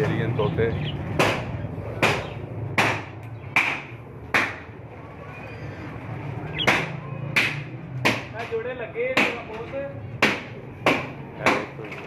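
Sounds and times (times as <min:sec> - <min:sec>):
budgerigars chirping: 0:00.2 - 0:01.2, 0:05.3 - 0:06.9
sharp striking blows: 0:01.0 - 0:04.8, 0:06.5 - 0:09.6, 0:10.2 - 0:11.8.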